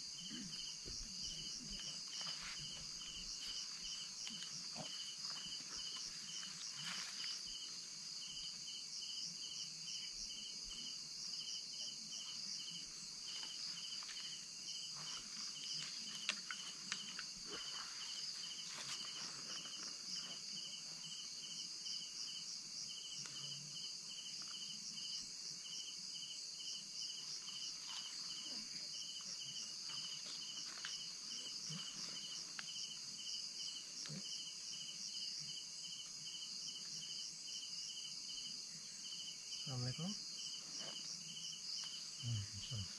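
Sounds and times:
insects chirring chorus: 0.0s - 42.9s
rapidly pulsing insect trill: 0.0s - 42.9s.

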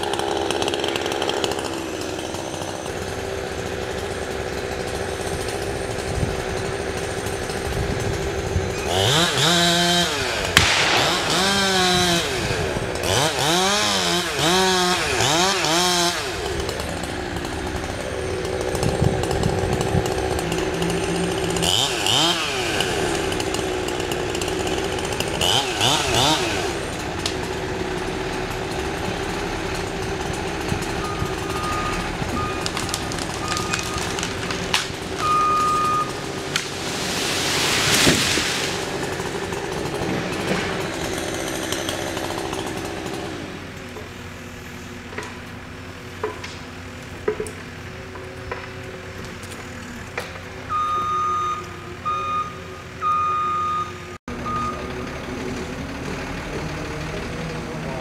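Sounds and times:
chainsaw running and revving: 0.0s - 53.0s, 53.9s - 58.0s
tree crashing down: 4.8s - 43.1s.

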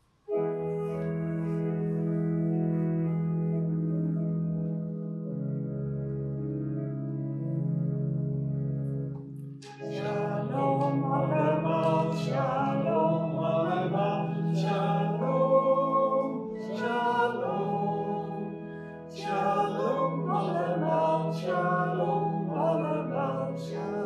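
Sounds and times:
held instrumental accompaniment: 0.3s - 24.0s
man and woman singing a hymn: 9.8s - 24.0s.

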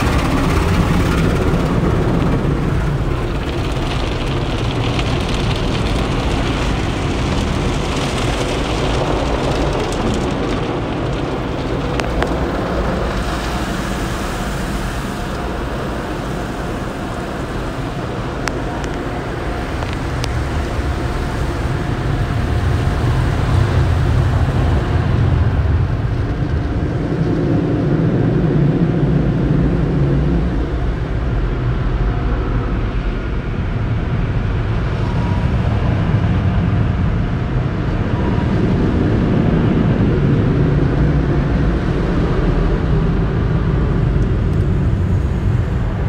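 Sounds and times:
water jets spraying on car: 0.0s - 28.6s
drying blowers rumbling: 0.0s - 46.0s.

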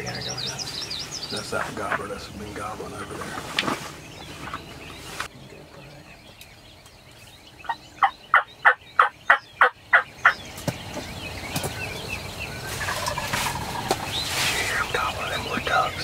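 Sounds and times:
wild turkey yelping: 7.6s - 10.4s.

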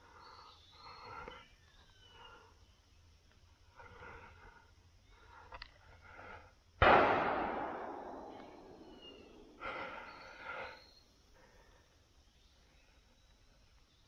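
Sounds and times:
shotgun shot echoing: 6.8s - 9.9s.

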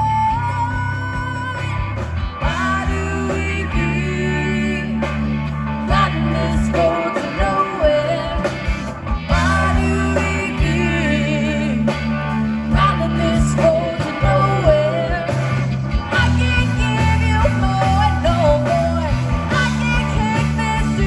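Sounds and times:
woman singing: 0.0s - 1.8s, 2.4s - 8.7s, 9.3s - 12.1s, 12.7s - 15.5s, 16.1s - 21.0s
bass: 0.0s - 21.0s
drums: 0.0s - 21.0s
electric guitar with bent notes: 0.0s - 21.0s
keyboard: 0.0s - 21.0s.

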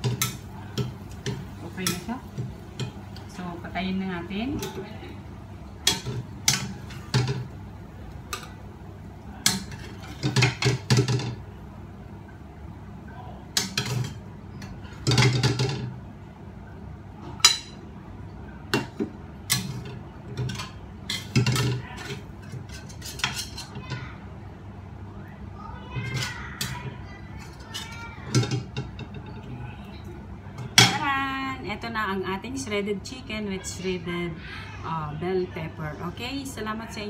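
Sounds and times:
metal spatula scraping a wok: 22.0s - 23.7s.

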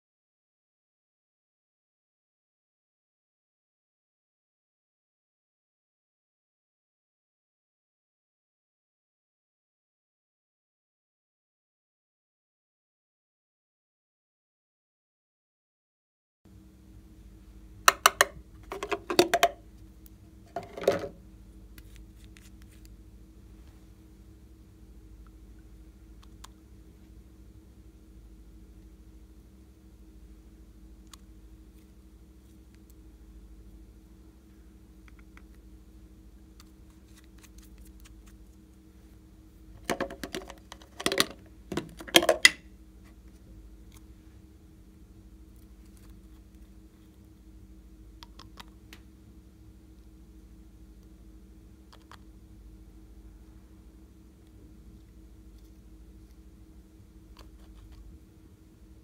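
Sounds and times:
faint steady hum: 16.5s - 59.0s
bottles and jars clicking: 17.9s - 19.6s.

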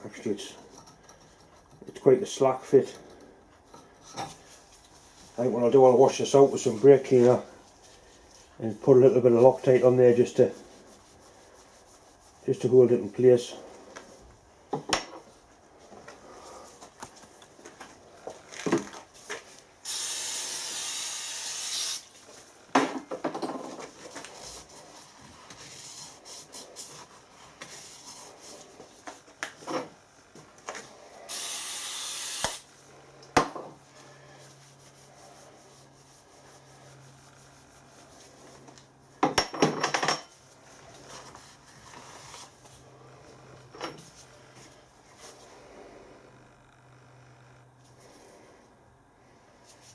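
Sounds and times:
rag wiping: 4.3s - 18.2s, 23.7s - 29.7s, 33.8s - 39.2s, 40.3s - 46.3s.

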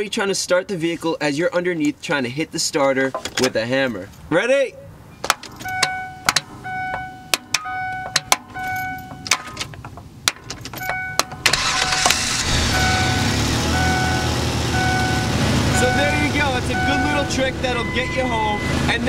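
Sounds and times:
engine cranking and running: 7.5s - 17.0s.

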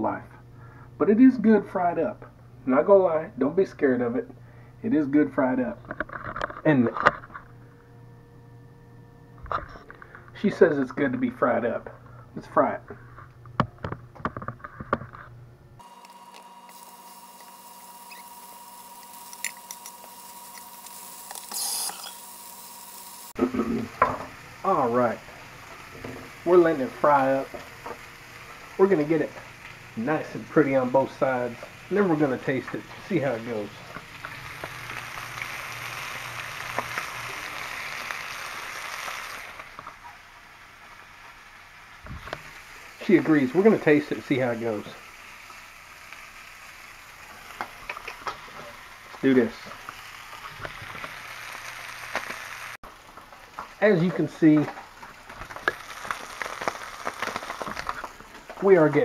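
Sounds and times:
crackles and pops: 13.2s - 24.7s, 25.3s - 40.3s, 45.4s - 59.0s
meat sizzling in skillet: 15.8s - 58.9s.

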